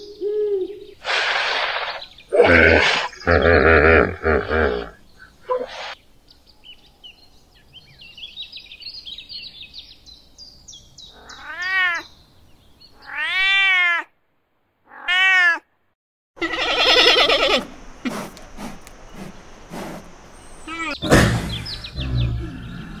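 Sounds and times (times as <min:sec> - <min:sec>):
loud harsh animal call: 0:01.0 - 0:06.0, 0:16.4 - 0:23.0
cat meowing: 0:11.2 - 0:12.0, 0:13.0 - 0:14.1, 0:14.9 - 0:15.7
faint high bird chirps: 0:20.3 - 0:23.0.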